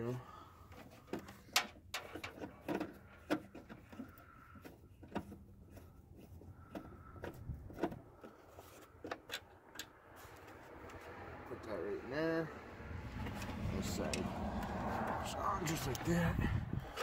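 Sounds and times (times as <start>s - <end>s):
hand tool tapping metal and plastic: 0.7s - 11.0s.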